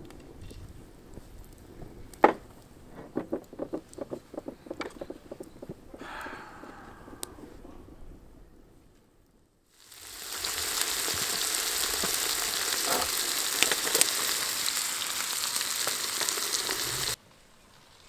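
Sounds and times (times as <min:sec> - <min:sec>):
steaks sizzling in a frying pan: 0:09.7 - 0:17.2.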